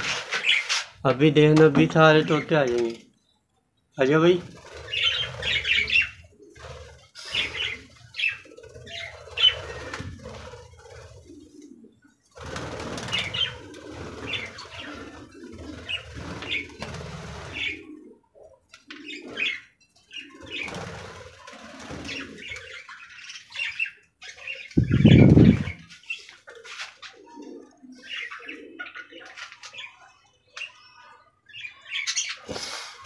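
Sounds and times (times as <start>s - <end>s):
wings flapping: 4.2s - 18.0s, 20.2s - 22.9s, 24.8s - 27.2s
budgerigars chirping: 4.9s - 6.2s.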